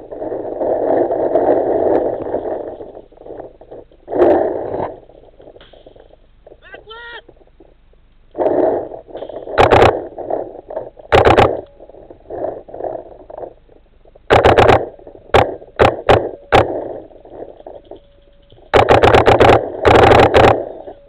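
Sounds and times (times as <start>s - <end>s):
paintball markers firing: 8.3s - 11.7s, 14.3s - 20.8s.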